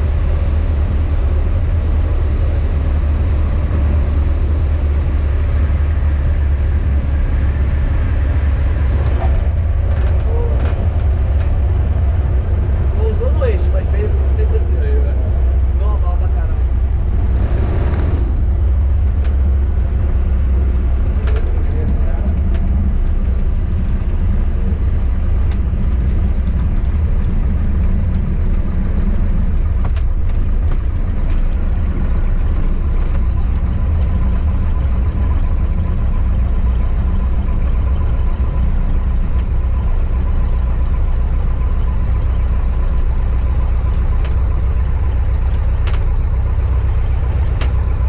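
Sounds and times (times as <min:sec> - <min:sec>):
plane engine idling in cabin: 0:00.0 - 0:17.3, 0:18.1 - 0:48.0.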